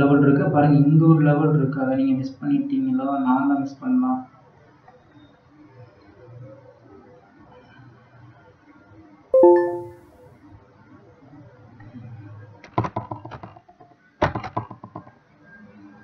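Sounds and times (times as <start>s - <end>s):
alert chime: 9.4s - 10.0s.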